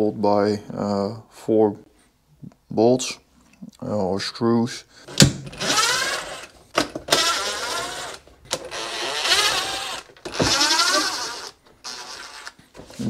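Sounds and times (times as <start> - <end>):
power driver whining: 5.0 - 13.0.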